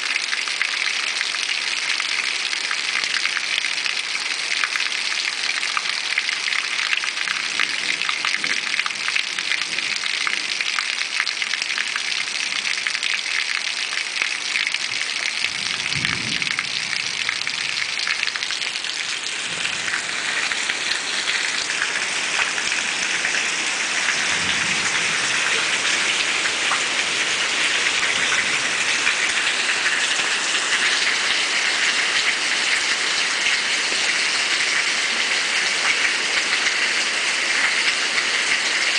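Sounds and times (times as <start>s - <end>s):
heavy rain: 0.0s - 38.9s
low rumbles: 15.6s - 20.7s.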